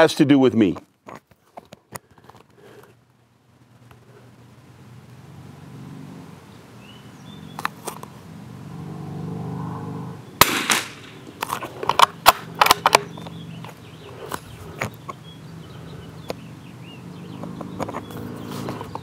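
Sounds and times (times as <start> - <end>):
rifle shot crack: 10.4 - 11.5.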